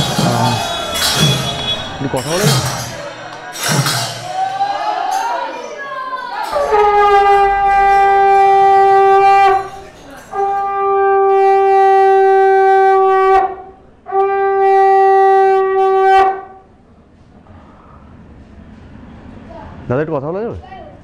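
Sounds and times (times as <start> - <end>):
conch shell blasts: 0.0 - 4.4, 6.5 - 16.7.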